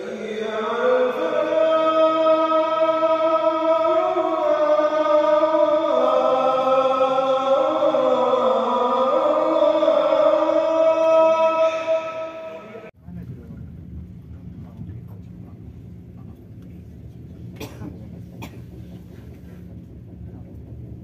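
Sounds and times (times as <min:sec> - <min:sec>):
solo voice chanting: 0:00.0 - 0:13.0.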